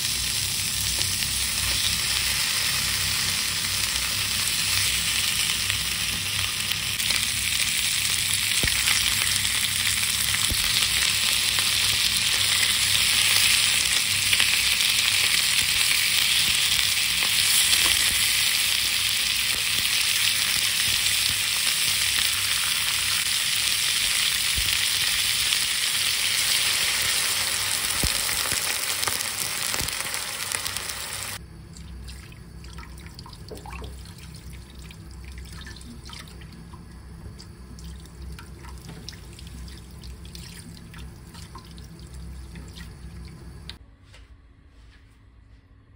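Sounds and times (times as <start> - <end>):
meat sizzling in a frying pan: 0.0 - 31.4.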